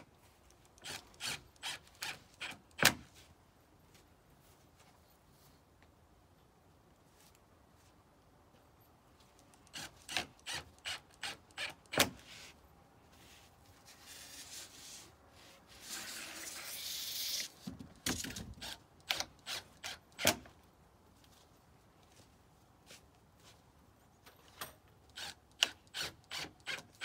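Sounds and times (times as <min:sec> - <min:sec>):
scraping rub: 0:13.2 - 0:17.4.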